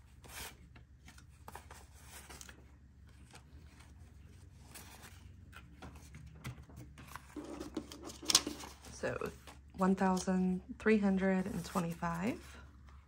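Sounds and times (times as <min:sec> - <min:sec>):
banknotes rustling and flicking: 0:00.0 - 0:13.0.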